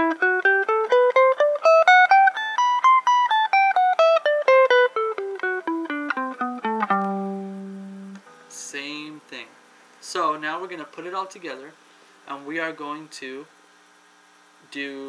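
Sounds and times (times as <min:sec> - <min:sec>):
electric guitar playing a scale: 0:00.0 - 0:09.2.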